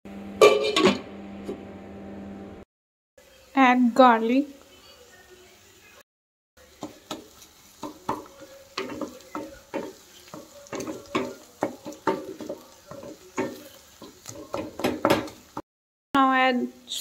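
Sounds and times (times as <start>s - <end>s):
onions sizzling in oil: 6.6s - 15.7s
utensil scraping pan: 6.9s - 15.6s.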